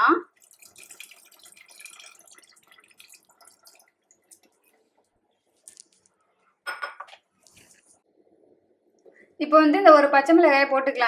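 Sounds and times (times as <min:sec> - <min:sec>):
liquid splashing trickle: 0:00.3 - 0:04.9
soft drips: 0:00.3 - 0:06.4.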